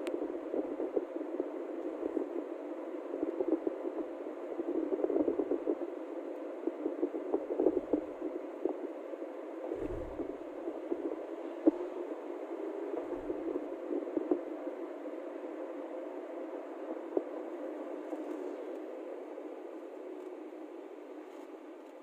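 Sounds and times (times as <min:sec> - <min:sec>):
vehicle road and wind noise: 0:09.7 - 0:10.4
low thump: 0:09.8 - 0:10.3.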